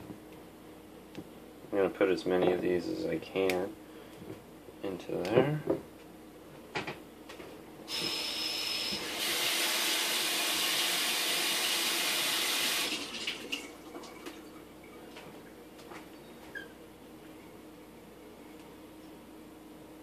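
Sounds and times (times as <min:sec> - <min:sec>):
water running from a tap: 0:11.9 - 0:14.4.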